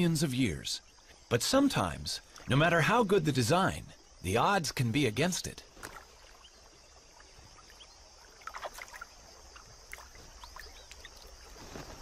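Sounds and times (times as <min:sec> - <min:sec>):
shallow water sloshing and splashing: 0:05.6 - 0:12.0.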